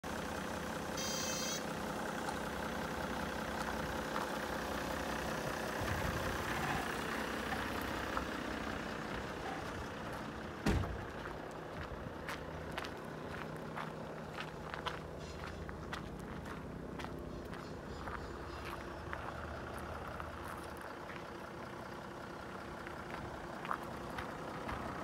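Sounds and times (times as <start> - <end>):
diesel engine idling: 0.0 - 25.0
thump: 10.6 - 11.0.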